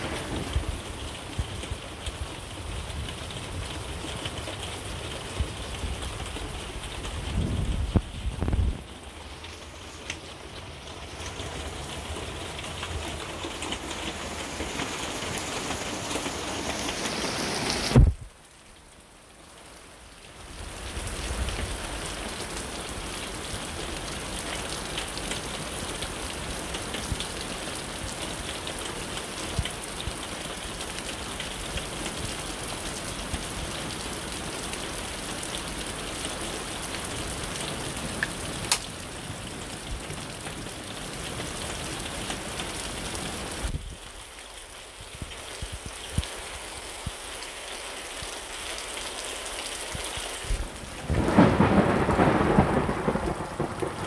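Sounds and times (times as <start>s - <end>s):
rain falling: 0.0s - 54.0s.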